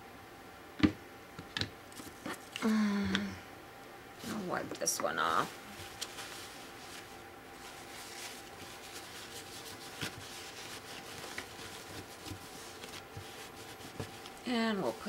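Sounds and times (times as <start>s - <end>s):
paper towel scrubbing plastic: 4.2s - 15.0s.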